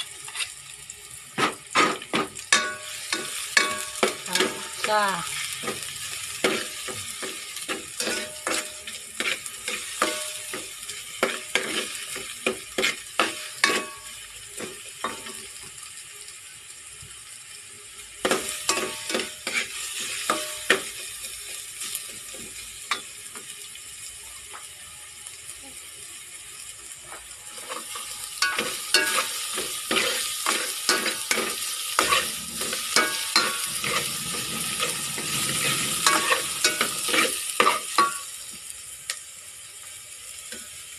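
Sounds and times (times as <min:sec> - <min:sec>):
food sizzling in metal pot: 0:00.0 - 0:40.9
spoon stirring and clinking on pot: 0:02.5 - 0:04.8, 0:06.4 - 0:14.1, 0:27.6 - 0:34.1, 0:34.7 - 0:38.3.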